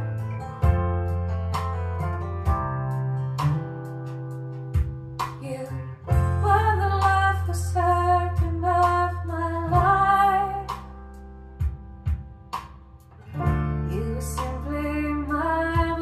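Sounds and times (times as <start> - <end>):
acoustic guitar: 0.0 - 16.0
woman singing: 5.4 - 10.9, 13.8 - 16.0.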